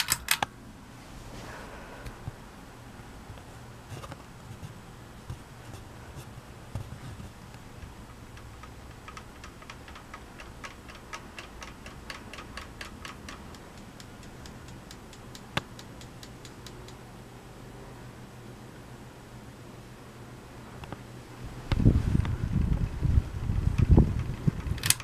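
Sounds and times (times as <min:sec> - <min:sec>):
ceiling fan humming: 0:00.0 - 0:25.0
fan ticking: 0:03.0 - 0:17.3, 0:21.6 - 0:25.0.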